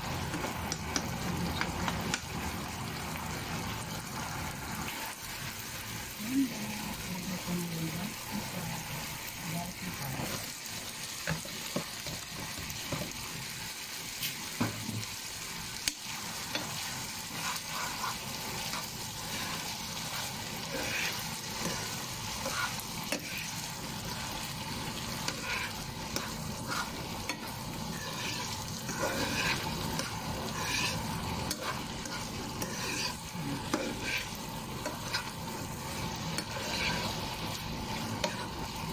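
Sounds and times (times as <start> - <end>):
meat sizzling in frying pan: 0.0 - 38.9
spoon tapping and scraping pan: 0.3 - 2.3, 11.2 - 13.2, 15.8 - 23.5, 25.2 - 37.2, 38.2 - 38.6.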